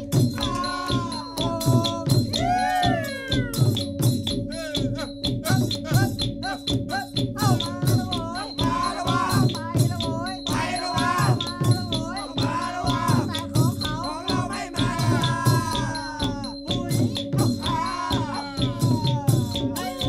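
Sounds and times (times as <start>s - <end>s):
rattling percussion: 0.0s - 20.0s.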